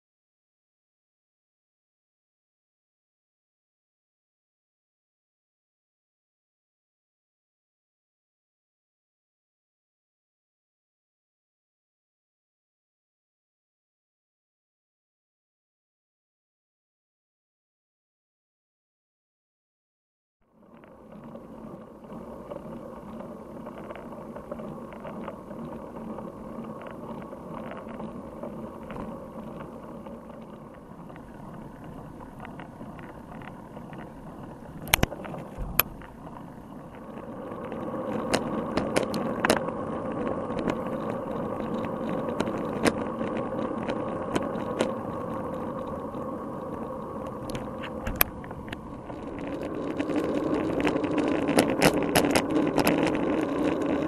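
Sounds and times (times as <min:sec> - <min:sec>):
muffled bicycle rumble on wet road: 0:20.5 - 0:54.0.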